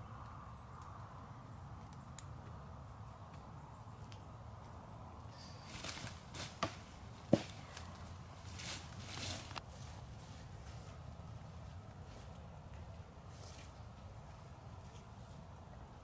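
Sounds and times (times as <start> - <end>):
footsteps shuffling through dry leaves: 8.3 - 11.0.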